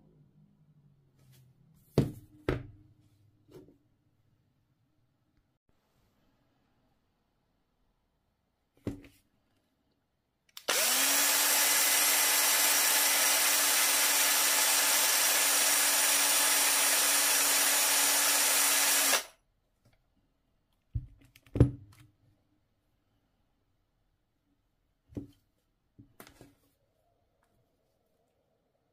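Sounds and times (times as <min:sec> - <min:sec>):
cordless drill motor whine: 0:10.6 - 0:19.3.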